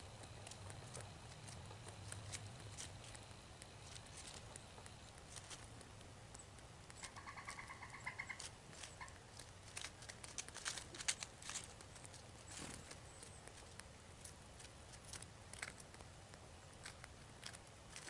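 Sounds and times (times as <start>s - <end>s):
squirrel lapping water: 0.0s - 18.0s
squirrel rattling call: 6.4s - 15.9s.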